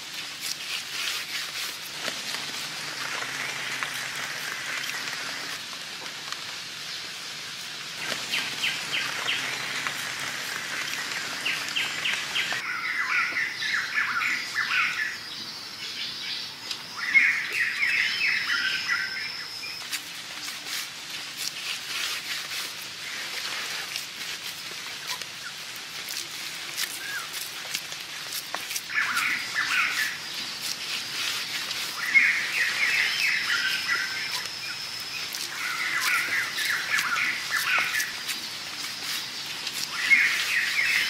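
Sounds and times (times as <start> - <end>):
birds trilling: 8.0 - 19.8, 28.8 - 41.0
thin steady high tone: 8.2 - 23.0, 28.8 - 41.0.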